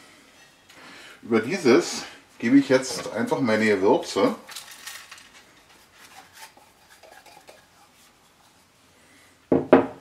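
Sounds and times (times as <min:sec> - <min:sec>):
crushed spices rattling onto meat: 0:04.4 - 0:05.4.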